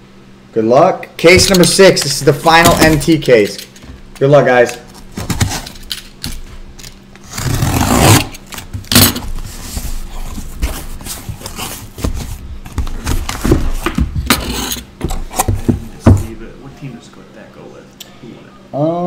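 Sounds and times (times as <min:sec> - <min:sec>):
cardboard flaps scraping: 0:01.3 - 0:03.2, 0:05.0 - 0:05.8, 0:07.2 - 0:16.4
tape ripping off cardboard: 0:01.4 - 0:03.2, 0:04.9 - 0:06.4, 0:07.2 - 0:09.5.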